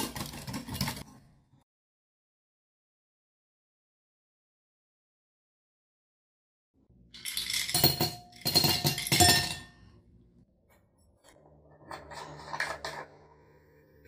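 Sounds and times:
ice cubes clinking in a glass: 7.2 - 9.7.

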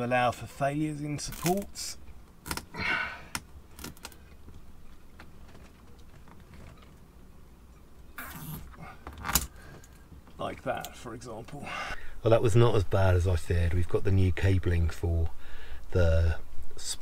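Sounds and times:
cables rustling: 1.2 - 11.6.

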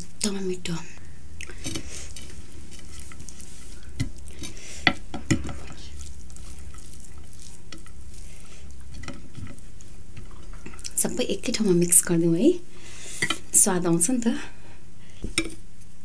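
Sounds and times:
fingers squishing rice and fish: 1.4 - 10.9.

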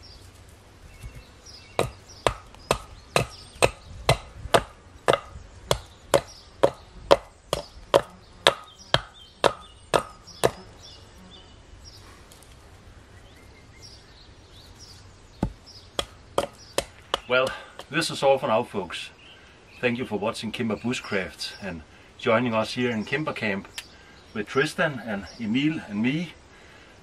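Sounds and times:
hatchet chopping wood: 1.8 - 10.6, 15.4 - 17.9.

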